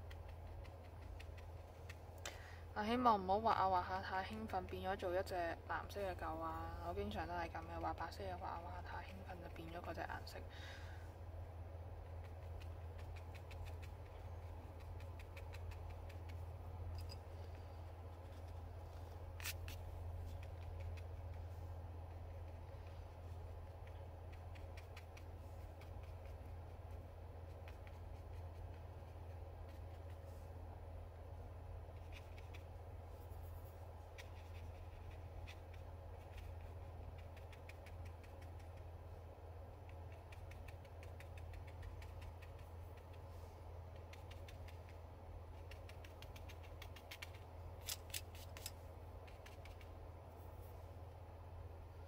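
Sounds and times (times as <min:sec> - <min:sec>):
paintbrush ticking on paper: 0:00.0 - 0:02.1, 0:12.0 - 0:17.1
brush ticking on paper: 0:00.0 - 0:02.2, 0:12.0 - 0:17.1, 0:19.4 - 0:30.4, 0:31.8 - 0:39.1, 0:39.7 - 0:47.5
steady low hum: 0:00.0 - 0:52.0.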